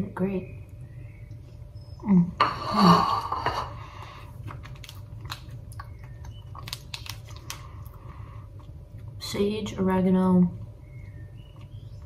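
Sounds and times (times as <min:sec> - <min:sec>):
person chewing: 0:03.8 - 0:09.2.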